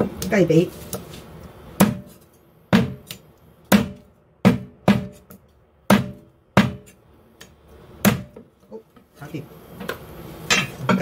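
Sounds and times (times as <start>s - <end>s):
cleaver chopping through bone: 1.8s - 2.2s.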